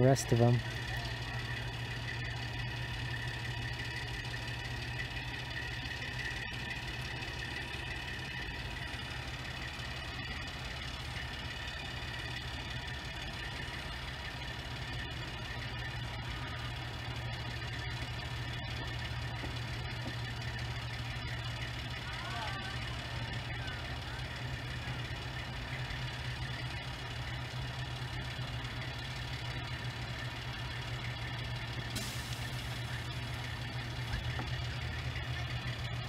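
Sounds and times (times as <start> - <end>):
crane engine idling: 0.0 - 36.0.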